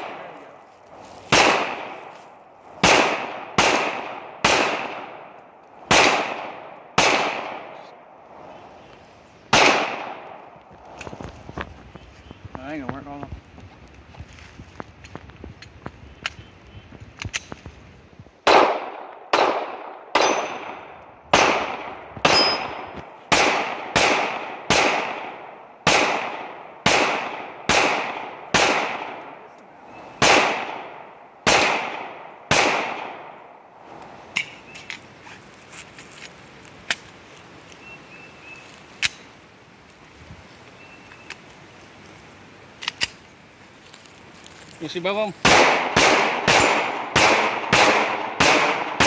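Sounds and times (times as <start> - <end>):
pistol shots with echo: 1.3 - 2.1, 2.8 - 5.3, 5.9 - 7.8, 9.5 - 10.4, 18.4 - 29.4, 30.2 - 33.6, 45.4 - 49.0.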